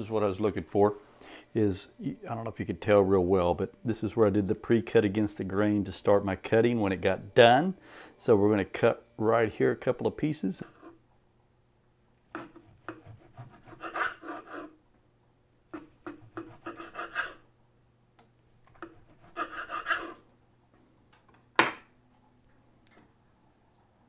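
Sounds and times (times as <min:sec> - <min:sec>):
knife sawing through crusty meat: 0:12.4 - 0:14.8, 0:15.8 - 0:17.4, 0:18.8 - 0:20.2.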